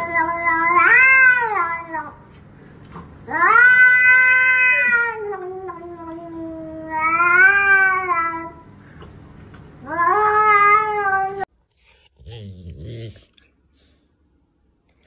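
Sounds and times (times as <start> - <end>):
cat yowling: 3.3 - 5.8.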